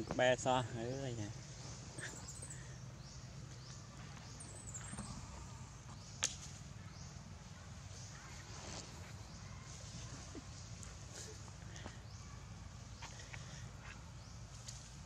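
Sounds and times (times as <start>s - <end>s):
low hum: 1.3s - 15.0s
faint high chirp: 1.9s - 6.2s.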